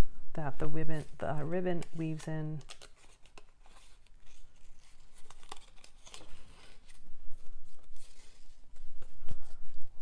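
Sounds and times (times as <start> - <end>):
paper rustling and crinkling: 1.0 - 10.0
paper handling clicks: 1.8 - 7.0.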